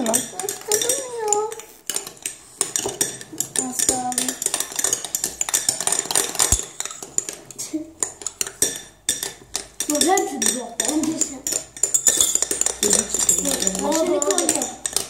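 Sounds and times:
spoons stirring thick slime: 0.0s - 15.0s
spoon clinking on glass: 11.4s - 15.0s.

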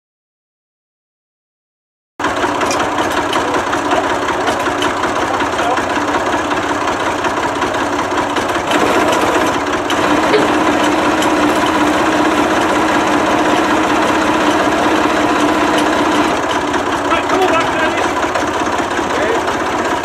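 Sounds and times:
forklift engine revving: 2.2s - 20.0s.

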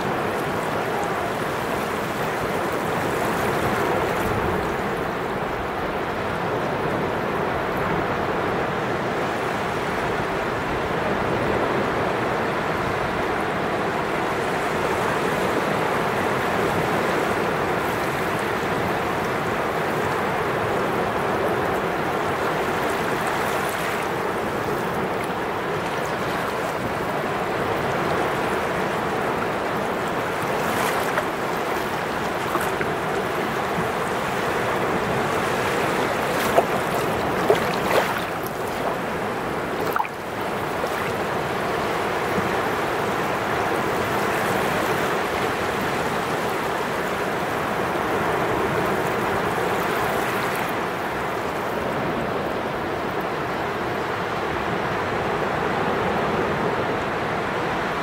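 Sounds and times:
small waves washing over sand: 0.0s - 58.0s.

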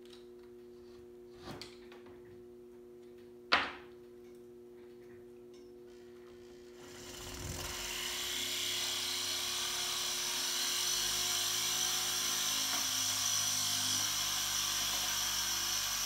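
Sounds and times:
rotary tool whining: 5.9s - 16.0s
drill bit grinding stone: 6.7s - 16.0s.

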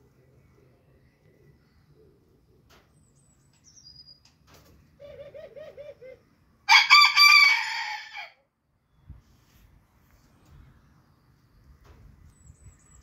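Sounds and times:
rooster crowing: 6.7s - 8.4s.

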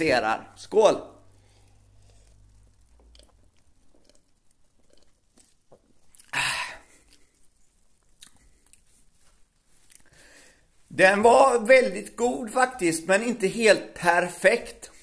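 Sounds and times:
man sipping and swallowing: 1.3s - 10.2s.

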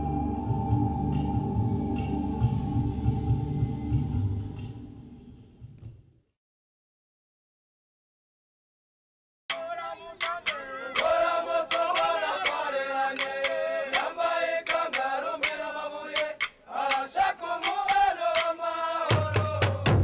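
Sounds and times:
deep drums: 0.0s - 5.0s, 19.1s - 20.0s
sharp rhythmic strikes: 9.5s - 20.0s
voices chanting together: 9.5s - 20.0s.

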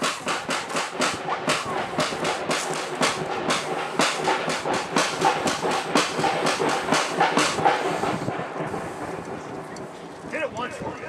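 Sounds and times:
sharp percussive hits echoing: 0.0s - 8.6s.

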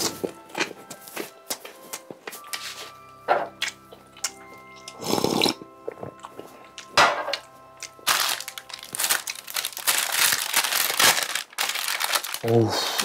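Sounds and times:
soft background music: 0.0s - 13.0s
paper wrapper crinkling: 7.8s - 13.0s.

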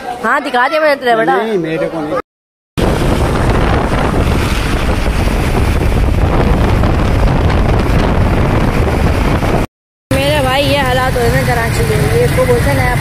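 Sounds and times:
street traffic: 2.8s - 13.0s
wind buffeting microphone: 2.8s - 13.0s.

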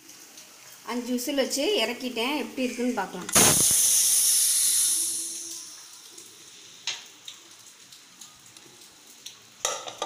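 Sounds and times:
steam hissing from vent: 3.3s - 5.8s.

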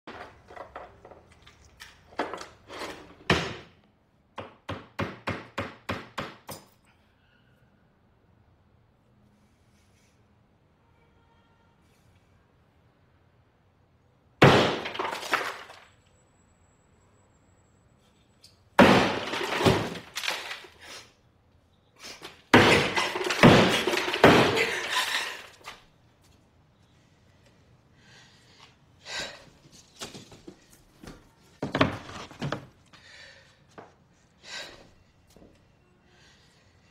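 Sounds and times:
hammer tapping a nail: 4.4s - 6.7s
hammer breaking through drywall: 14.4s - 15.8s, 18.8s - 20.8s, 22.5s - 25.5s.

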